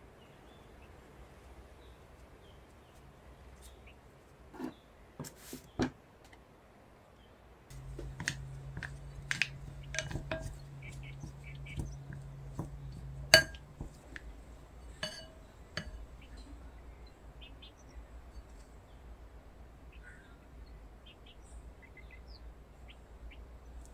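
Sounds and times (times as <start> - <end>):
low steady hum: 6.8 - 23.9
spoon clinking glass bowl: 8.2 - 11.4, 12.1 - 14.0, 14.9 - 16.1.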